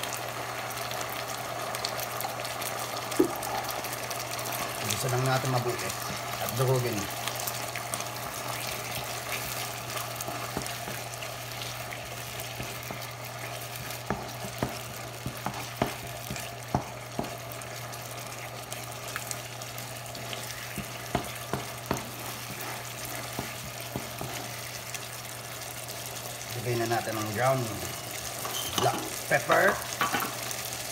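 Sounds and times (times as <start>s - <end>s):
fish sizzling in frying pan: 0.0s - 30.9s
wooden spoon knocking pan: 10.2s - 11.2s, 13.7s - 17.4s, 20.7s - 24.5s.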